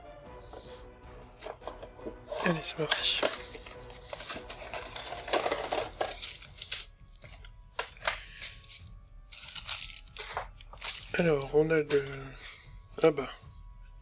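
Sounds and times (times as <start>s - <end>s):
cardboard rustling and scraping: 1.3s - 7.4s
plastic sprues clicking together: 2.9s - 12.2s
plastic bag crinkling: 3.2s - 7.3s, 8.2s - 12.2s.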